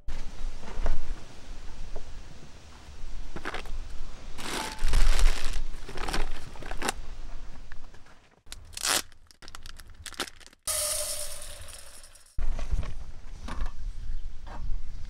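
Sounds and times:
material crinkling and tearing: 0:04.4 - 0:07.0, 0:08.4 - 0:10.7.

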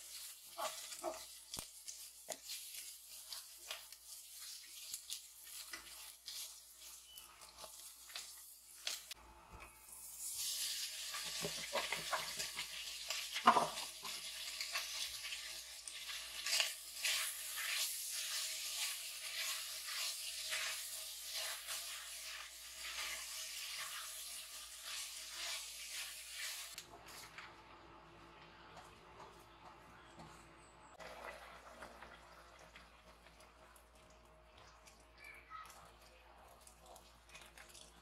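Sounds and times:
chicken sizzling in hot oil: 0:00.0 - 0:27.3.

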